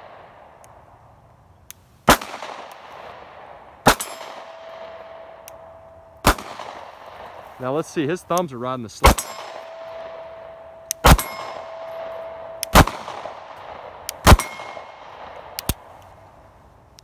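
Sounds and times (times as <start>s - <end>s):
pistol shots: 2.1s - 7.6s, 8.3s - 15.8s
metallic ringing: 4.0s - 6.2s, 9.0s - 12.8s, 14.4s - 14.9s.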